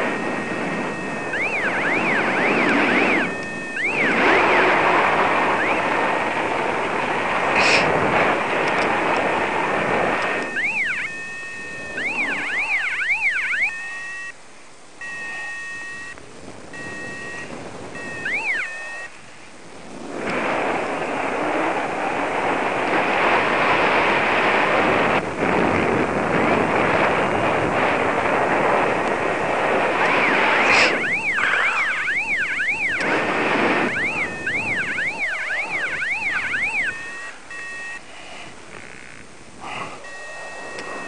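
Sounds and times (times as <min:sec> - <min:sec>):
variometer tone warbling: 0:00.0 - 0:06.8, 0:09.8 - 0:14.4, 0:15.0 - 0:19.2, 0:29.8 - 0:38.1, 0:38.8 - 0:41.0
wind rushing over microphone: 0:00.0 - 0:12.9, 0:16.1 - 0:41.0.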